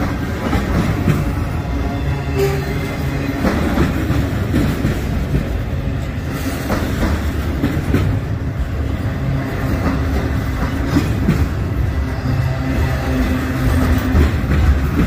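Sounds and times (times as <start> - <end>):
freight train rumbling past: 0.0 - 15.0
wheels clicking over rail joints: 2.4 - 11.8, 13.2 - 15.0.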